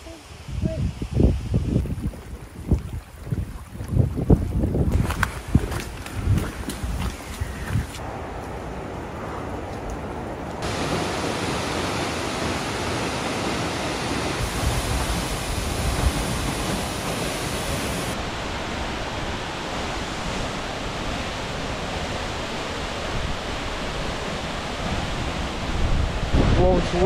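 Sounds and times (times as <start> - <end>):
waterfall roaring: 8.0 - 27.0.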